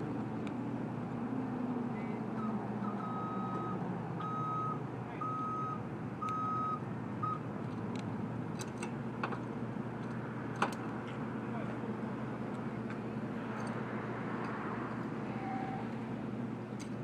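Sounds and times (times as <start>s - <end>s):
traffic and engine noise: 0.0s - 17.0s
reversing alarm beeping: 2.4s - 7.4s.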